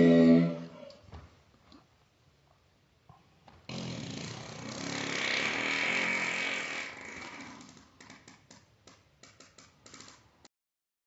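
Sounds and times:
person making harsh buzzing voice: 0.0s - 0.9s.

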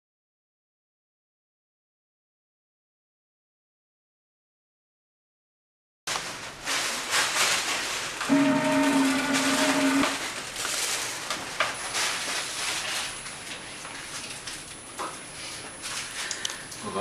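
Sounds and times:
plastic film crackling: 6.1s - 14.8s
steady hum: 8.1s - 10.6s
machine rushing hiss: 8.3s - 10.4s.

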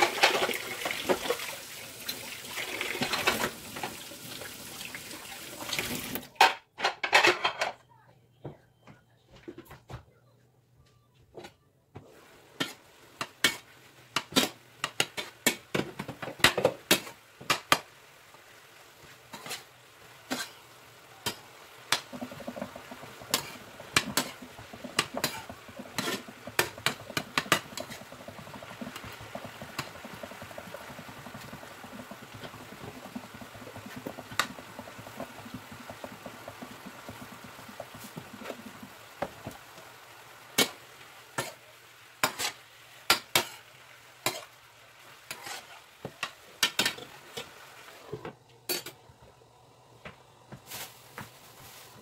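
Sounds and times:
utensil scraping frying pan: 0.0s - 1.5s, 2.5s - 4.0s, 12.2s - 17.9s, 19.1s - 39.6s, 40.5s - 47.9s
frying sizzle: 0.0s - 6.5s, 12.0s - 52.0s.

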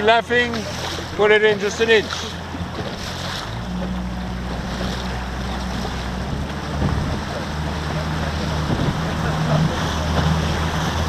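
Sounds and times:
outboard motor running: 0.0s - 11.0s
water rushing along hull: 0.0s - 11.0s
wind on microphone: 4.5s - 11.0s.

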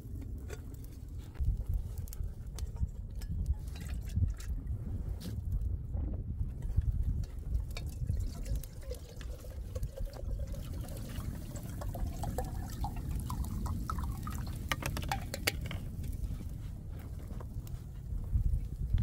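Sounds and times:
water pouring into metal kettle: 7.8s - 15.2s.

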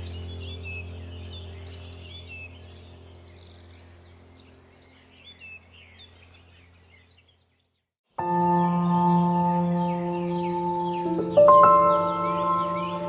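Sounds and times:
birdsong chirps and whistles: 0.0s - 13.0s
low steady drone: 8.2s - 13.0s.

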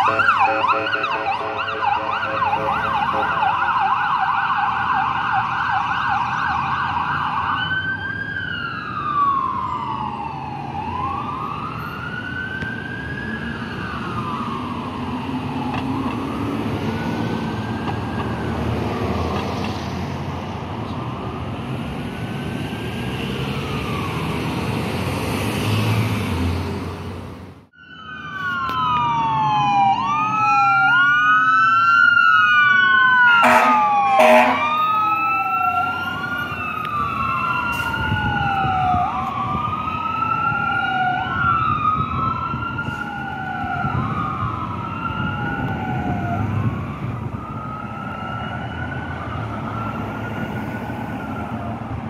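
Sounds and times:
electronic siren yelp and wail: 0.0s - 19.3s, 27.8s - 52.0s
passing traffic: 0.0s - 52.0s.

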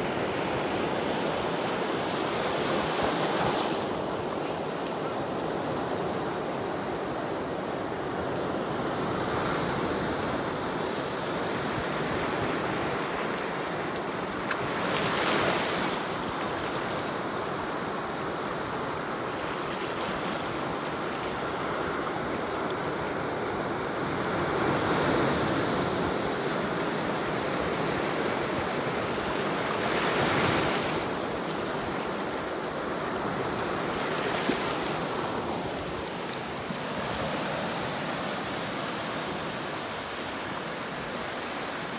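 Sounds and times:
surf washing over rocks: 8.9s - 41.9s
waves breaking: 24.5s - 41.9s.

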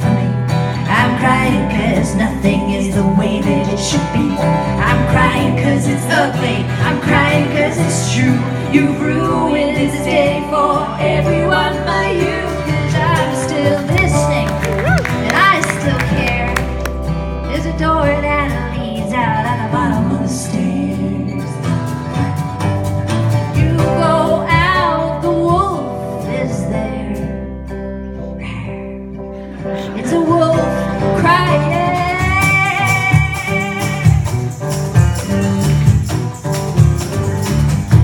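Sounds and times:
acoustic guitar: 0.0s - 38.0s
bass guitar: 0.0s - 38.0s
cajon beat: 13.6s - 17.1s, 32.0s - 38.0s.

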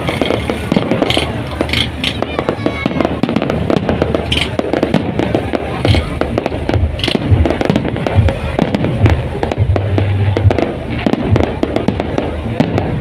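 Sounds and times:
fireworks shells bursting: 0.0s - 13.0s.

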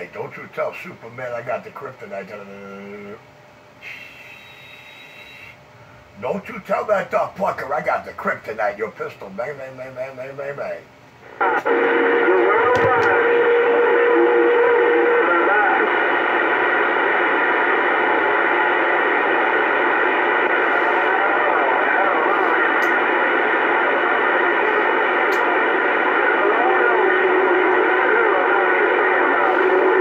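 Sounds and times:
radio band noise: 0.0s - 5.6s, 6.2s - 30.0s
faint garbled radio voices: 6.2s - 30.0s.

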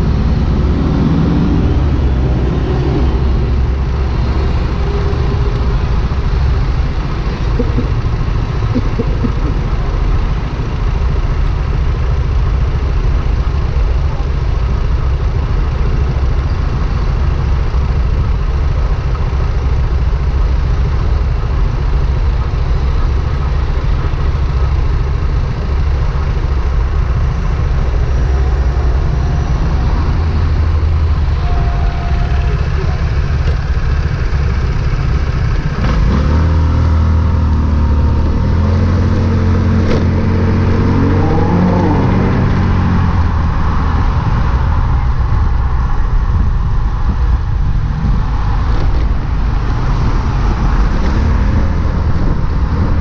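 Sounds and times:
vehicle engine rumbling and revving: 0.0s - 53.0s
tyre and wind noise: 22.4s - 53.0s.

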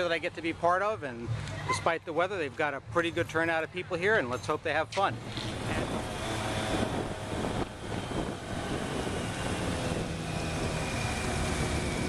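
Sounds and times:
motorcycle engines running: 4.4s - 12.0s
wind noise on microphone: 5.1s - 12.0s.

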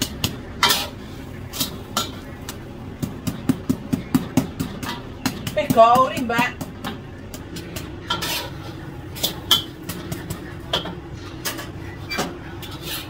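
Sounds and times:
metal spatula scraping a wok: 0.0s - 2.4s, 7.7s - 10.2s, 10.8s - 13.0s.

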